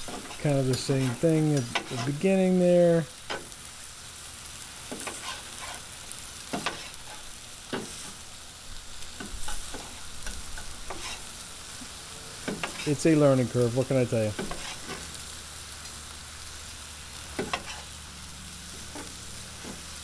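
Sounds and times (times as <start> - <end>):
meat sizzling on a griddle: 0.0 - 20.0
knife and fork scraping metal: 0.1 - 2.2, 4.9 - 5.8, 10.6 - 11.3, 14.4 - 15.1, 17.4 - 17.9.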